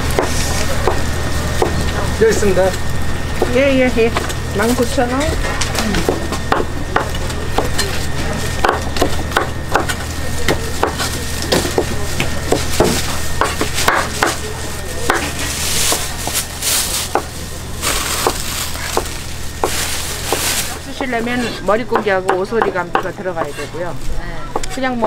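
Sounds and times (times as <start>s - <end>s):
plastic bag rustling: 10.0s - 21.8s
knife chopping on cutting board: 12.5s - 14.4s.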